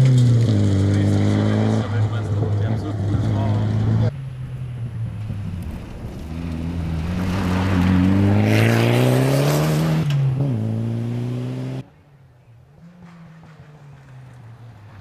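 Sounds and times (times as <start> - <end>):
rally car engine accelerating: 0.0 - 11.8
gravel and tyre noise: 0.0 - 15.0.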